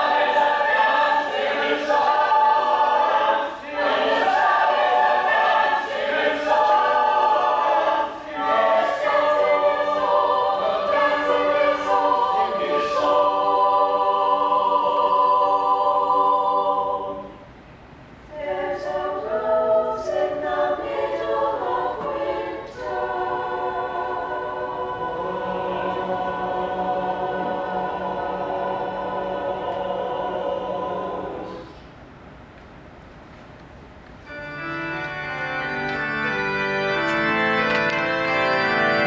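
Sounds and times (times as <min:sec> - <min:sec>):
mixed choir singing a cappella: 0:00.0 - 0:17.5, 0:18.3 - 0:31.8.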